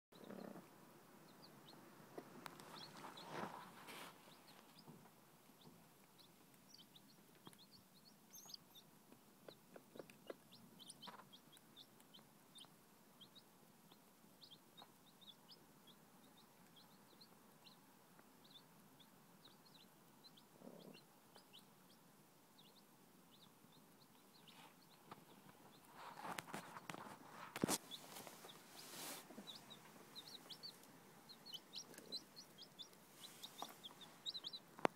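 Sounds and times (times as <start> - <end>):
chicks peeping: 0.1 - 34.9
hen clucking: 0.2 - 0.7, 6.2 - 15.6, 24.1 - 34.9.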